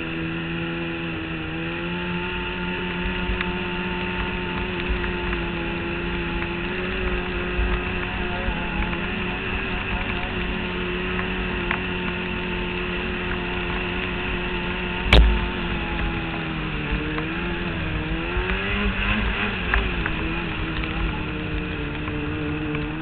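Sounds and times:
snowmobile engine running: 0.0s - 23.0s
sharp knock: 15.1s - 15.5s.

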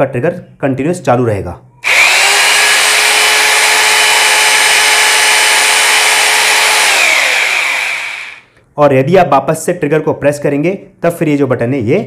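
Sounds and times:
hammer drill motor whining: 1.8s - 8.5s.

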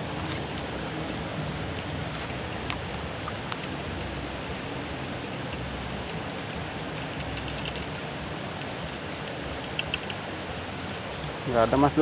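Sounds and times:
flowing river water: 0.0s - 12.0s
faint clicks: 9.3s - 10.2s.

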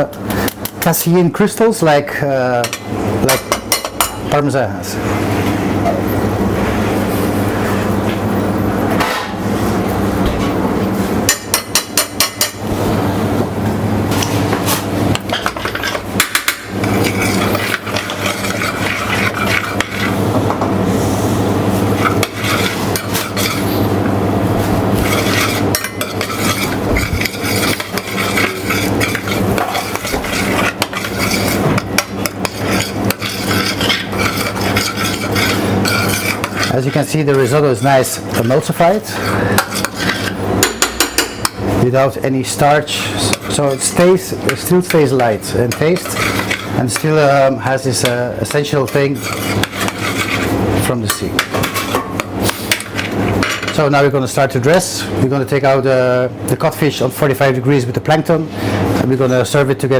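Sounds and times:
steady low hum: 0.0s - 59.9s
spoon scraping saucepan: 15.3s - 20.2s, 21.9s - 23.8s, 24.9s - 41.2s, 43.2s - 53.8s.

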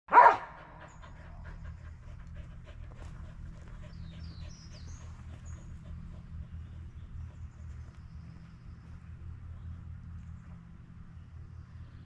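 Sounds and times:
dog panting: 0.5s - 8.4s.

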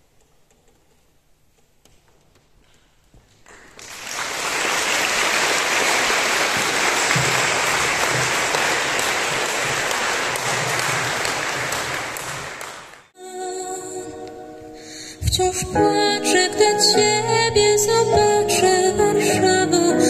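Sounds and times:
audience applauding: 3.4s - 13.1s.

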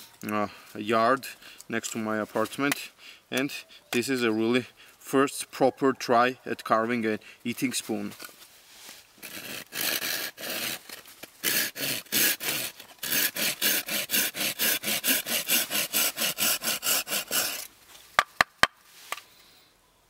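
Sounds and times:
hand saw cutting wood: 9.2s - 17.7s.

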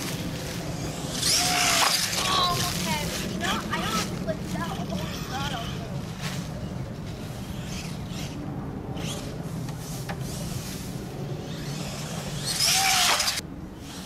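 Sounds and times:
electric motor whine: 0.0s - 2.4s, 7.5s - 14.0s.

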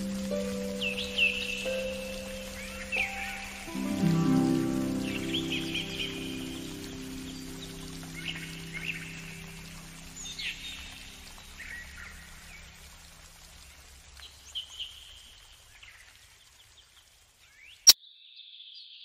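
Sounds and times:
birds chirping: 0.0s - 12.9s
faint outdoor hiss: 0.0s - 18.0s.

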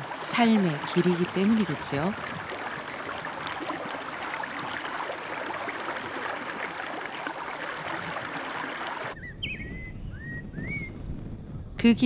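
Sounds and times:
whistled bird chirps: 9.2s - 11.0s.

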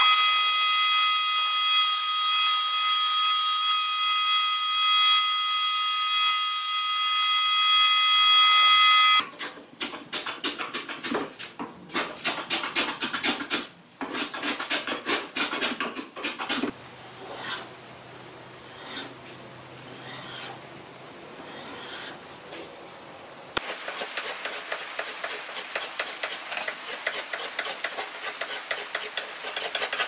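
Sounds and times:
scraping strokes on wood: 9.2s - 17.8s, 18.6s - 20.6s, 21.4s - 22.7s, 23.6s - 30.0s.

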